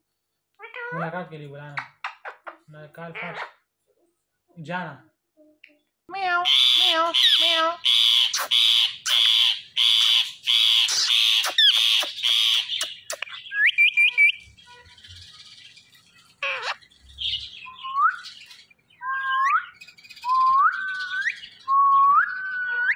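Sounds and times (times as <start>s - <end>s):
parakeet screeching: 2.0s - 3.6s, 6.2s - 15.3s, 16.0s - 17.7s
parakeet chirps rising: 6.4s - 22.9s.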